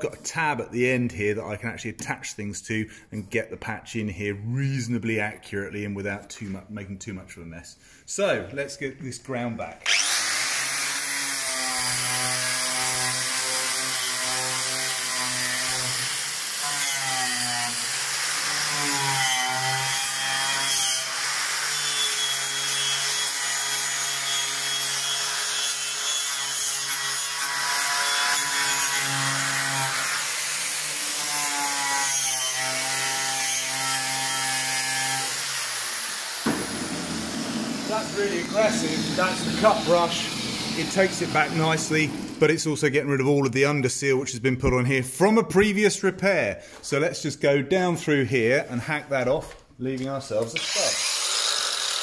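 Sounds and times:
angle grinder wire brush scraping metal: 34.8s - 42.4s.

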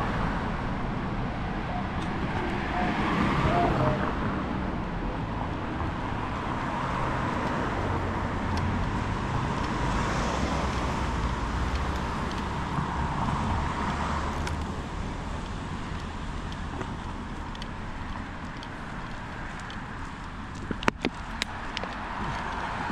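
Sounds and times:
road traffic rumble: 0.0s - 22.9s
vehicle passing: 1.5s - 15.0s.

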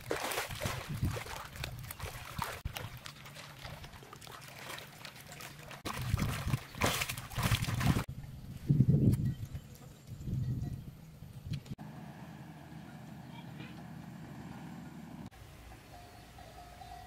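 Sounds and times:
hands slapping water: 0.0s - 8.1s
water sloshing and splashing: 0.0s - 8.1s.

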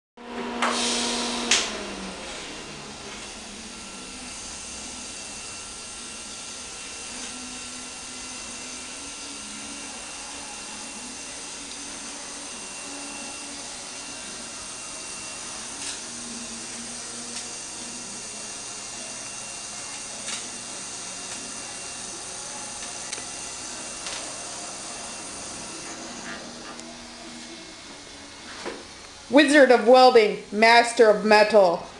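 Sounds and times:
welding arc pops: 0.6s - 1.8s, 20.0s - 20.6s
welding arc hissing: 0.6s - 31.9s.

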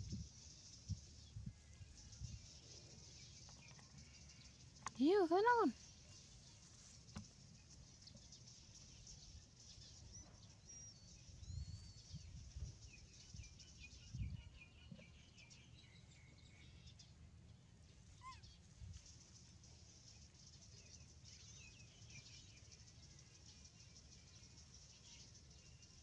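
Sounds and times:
faint bird chirps: 0.0s - 26.0s.

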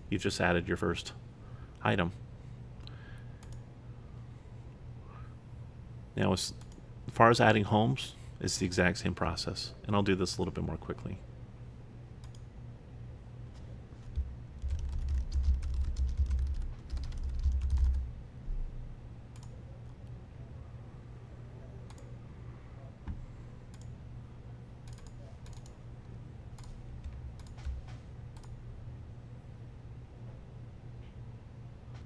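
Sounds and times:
steady low hum: 0.0s - 32.0s
typing on computer keyboard: 14.1s - 18.1s, 24.8s - 25.8s, 26.6s - 28.6s.

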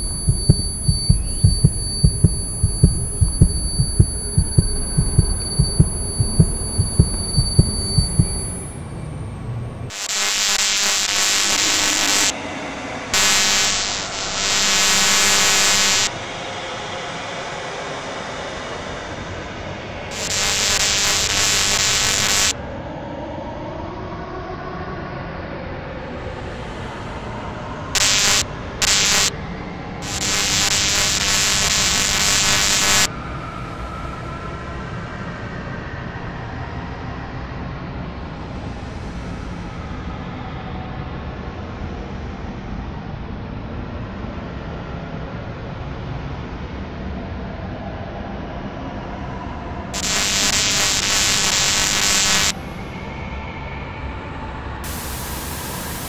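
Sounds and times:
loud hiss bursts: 9.9s - 12.3s, 13.2s - 16.1s, 20.1s - 22.5s, 28.0s - 29.3s, 30.0s - 33.1s, 50.0s - 52.5s, 54.8s - 56.0s
loud hissing blasts: 50.0s - 52.5s, 54.8s - 56.0s.

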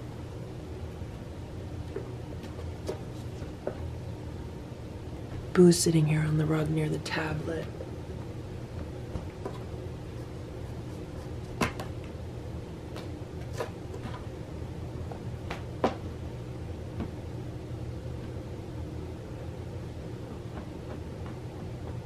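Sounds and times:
low indoor hum: 0.0s - 22.0s.

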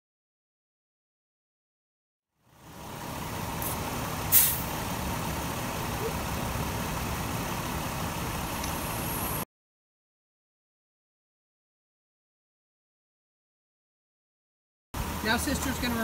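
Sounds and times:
vehicle engine idling: 2.4s - 9.4s, 15.0s - 16.0s
short sharp hiss: 3.6s - 4.7s.

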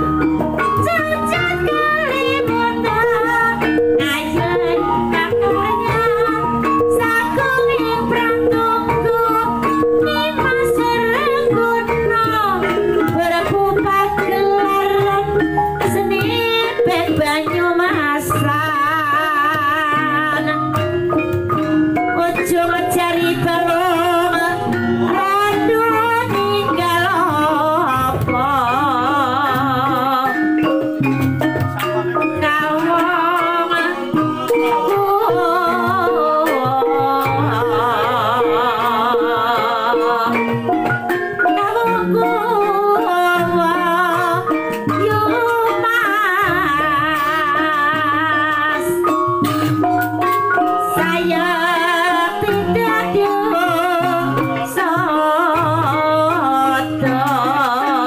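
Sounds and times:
gamelan ensemble playing: 0.0s - 58.0s
wavering melody line: 0.0s - 58.0s.

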